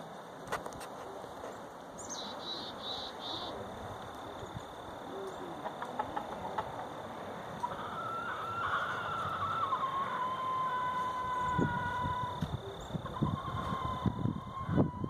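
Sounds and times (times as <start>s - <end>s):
rooster crowing: 7.6s - 12.4s, 13.0s - 15.0s.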